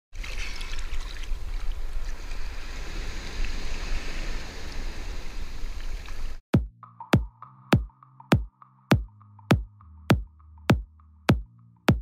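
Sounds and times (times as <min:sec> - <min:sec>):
small waves breaking: 0:00.2 - 0:06.4.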